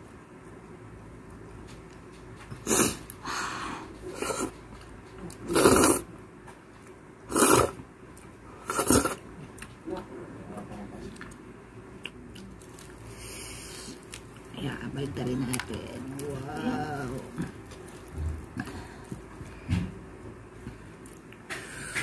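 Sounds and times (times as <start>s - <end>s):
slurping soup: 5.5s - 6.1s, 7.3s - 7.8s, 8.6s - 9.2s
chewing: 17.0s - 19.5s.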